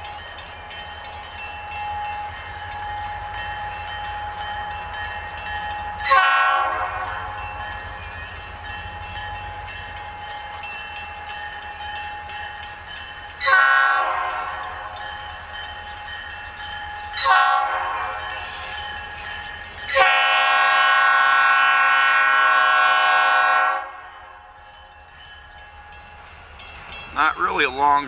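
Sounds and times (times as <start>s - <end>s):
locomotive air horn blasts: 6.0s - 7.4s, 13.4s - 14.9s, 17.2s - 18.3s, 20.0s - 24.1s.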